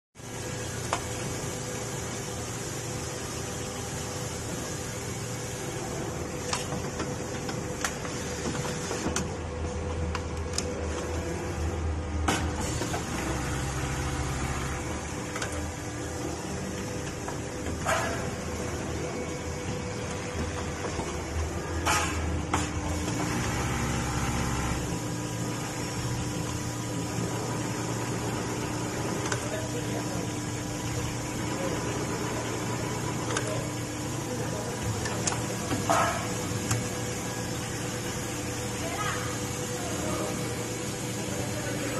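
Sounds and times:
sewing machine humming: 12.6 - 17.6, 22.8 - 30.3.

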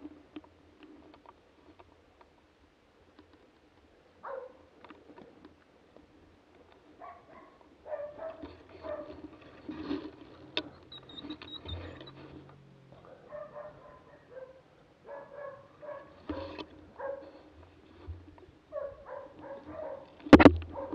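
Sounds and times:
dog barking: 4.2 - 4.7, 7.0 - 9.2, 13.0 - 17.4, 18.7 - 20.9.

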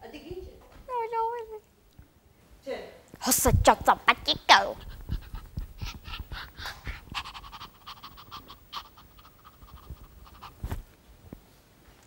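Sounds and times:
breathy panting: 4.8 - 10.8.

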